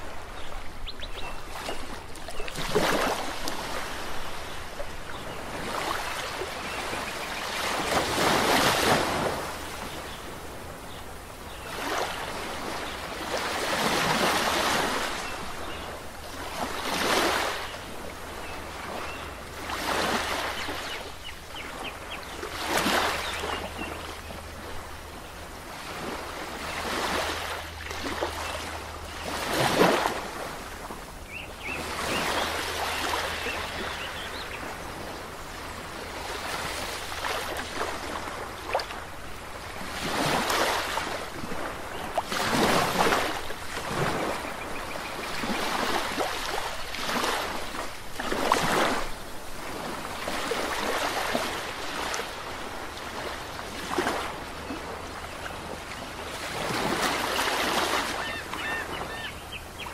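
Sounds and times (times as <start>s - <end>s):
waves washing on sandy beach: 0.0s - 59.9s
faint bird chirps: 58.1s - 59.9s.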